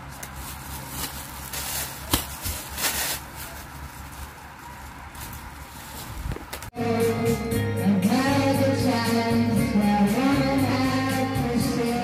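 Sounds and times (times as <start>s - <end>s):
plastic packaging crinkling: 0.0s - 6.5s.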